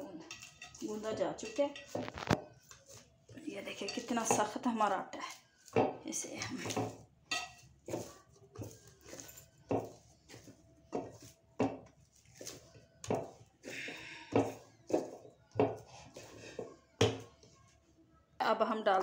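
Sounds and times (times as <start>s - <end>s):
dough thumping against bowl: 10.9s - 13.4s.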